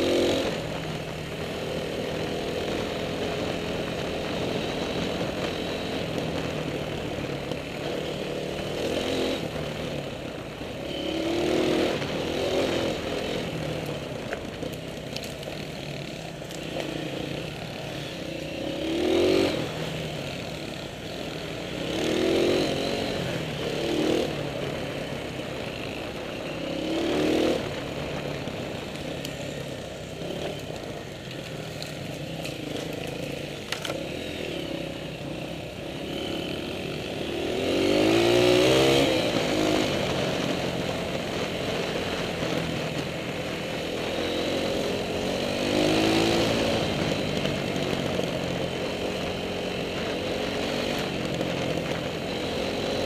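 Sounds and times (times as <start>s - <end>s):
dirt bike engine revving: 16.9s - 19.9s, 21.8s - 24.4s, 36.0s - 40.5s.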